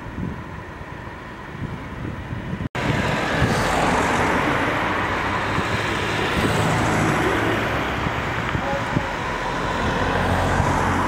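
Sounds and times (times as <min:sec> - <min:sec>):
road traffic: 0:00.0 - 0:11.0
car driving past: 0:02.8 - 0:11.0.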